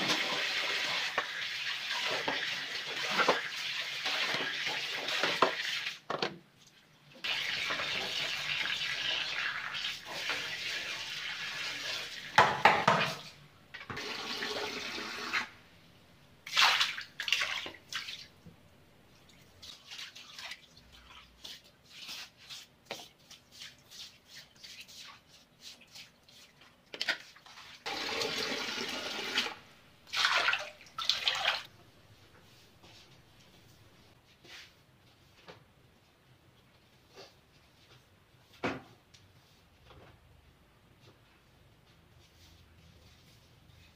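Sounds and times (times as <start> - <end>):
tap water running into basin: 0.0 - 6.0, 13.8 - 15.5, 27.9 - 31.7
water splashing on tiled floor: 16.4 - 18.3, 19.3 - 21.7, 26.9 - 31.7.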